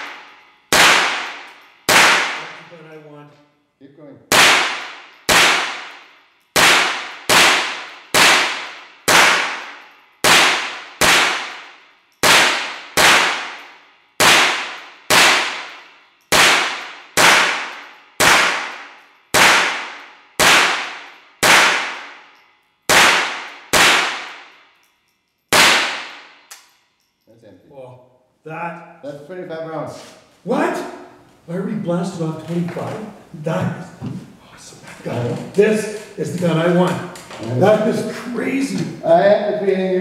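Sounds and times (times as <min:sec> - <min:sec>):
rifle shots with echo: 0:00.0 - 0:02.7, 0:04.3 - 0:22.3, 0:22.9 - 0:24.7, 0:25.5 - 0:26.5.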